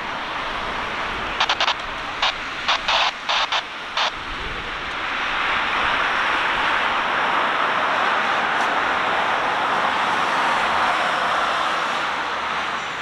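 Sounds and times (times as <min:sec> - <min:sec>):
distant jet engines roaring: 0:00.0 - 0:13.0
sharp hiss bursts: 0:01.4 - 0:04.1.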